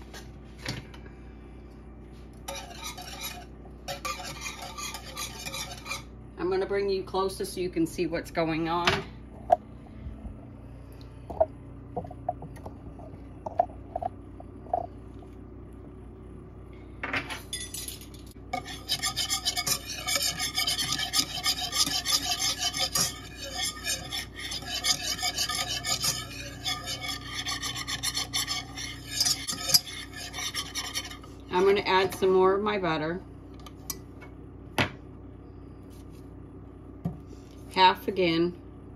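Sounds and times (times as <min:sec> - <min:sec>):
whisk scraping saucepan: 0:02.4 - 0:06.8, 0:18.5 - 0:32.4.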